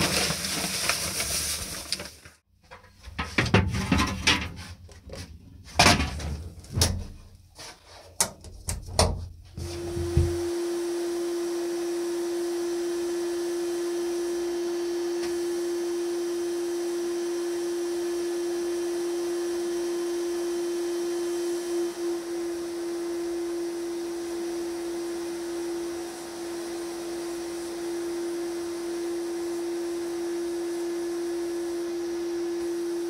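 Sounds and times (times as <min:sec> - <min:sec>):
sheet-metal parts clattering: 0:02.7 - 0:04.7
sandblast cabinet tone: 0:09.6 - 0:33.0.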